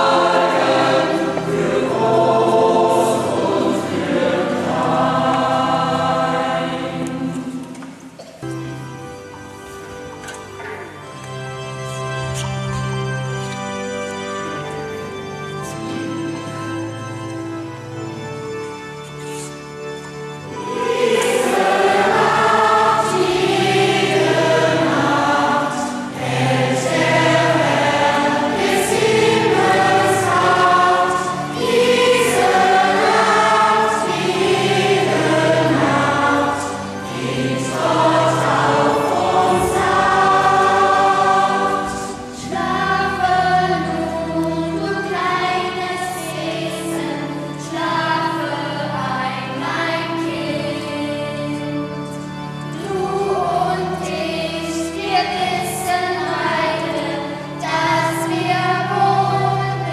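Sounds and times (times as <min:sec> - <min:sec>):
mixed choir singing: 0:00.0 - 0:08.1, 0:20.4 - 0:51.9, 0:52.7 - 0:59.9
low accompanying notes: 0:00.0 - 0:59.9.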